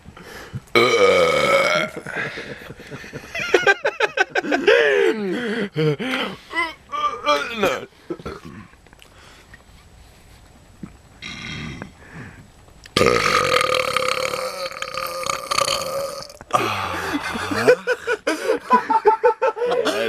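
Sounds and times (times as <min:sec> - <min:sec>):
person belching: 0:00.7 - 0:02.2, 0:07.2 - 0:08.7, 0:11.2 - 0:11.9, 0:12.9 - 0:17.7.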